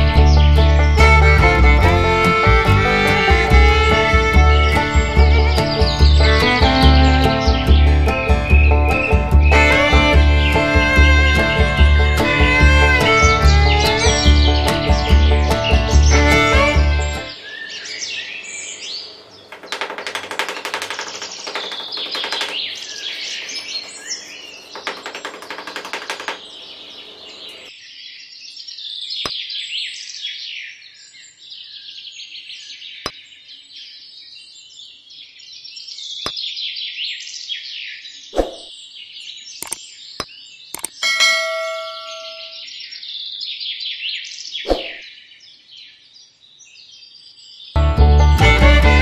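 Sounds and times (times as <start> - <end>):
small birds chirping: 0.0 - 47.8
sharp taps: 19.5 - 26.8
scratchy rustling: 19.5 - 26.9.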